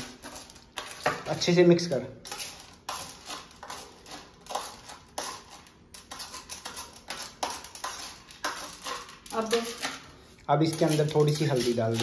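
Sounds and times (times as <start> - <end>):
spoon scraping a steel plate: 0.0 - 1.3, 2.2 - 12.0.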